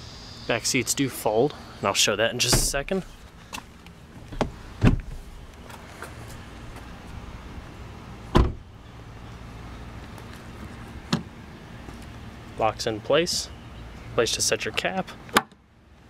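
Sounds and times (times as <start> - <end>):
car door shutting: 2.4 - 3.1, 4.3 - 5.3, 8.3 - 8.7, 11.1 - 11.3.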